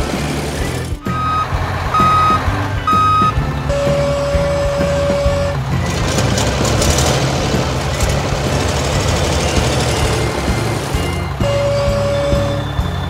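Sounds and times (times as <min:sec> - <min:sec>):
low engine rumble: 0:00.0 - 0:13.0
truck reversing alarm beeping: 0:00.7 - 0:13.0
low single alarm tone: 0:01.1 - 0:05.6, 0:11.4 - 0:12.9.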